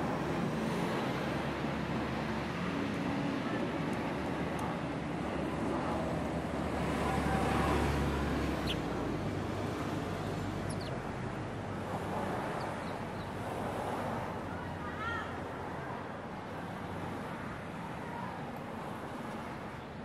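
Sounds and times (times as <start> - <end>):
traffic noise: 0.0 - 20.0
bird chirps: 10.6 - 11.0.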